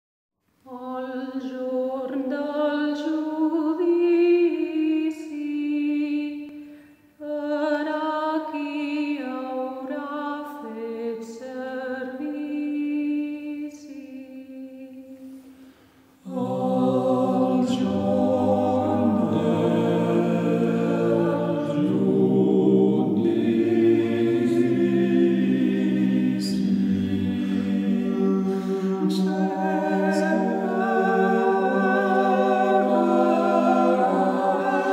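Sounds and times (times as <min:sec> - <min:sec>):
unaccompanied choir singing: 0:16.2 - 0:34.9.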